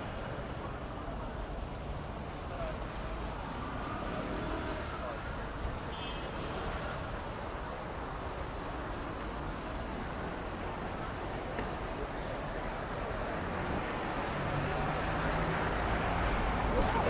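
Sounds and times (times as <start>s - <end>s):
cars passing: 0.0s - 17.0s.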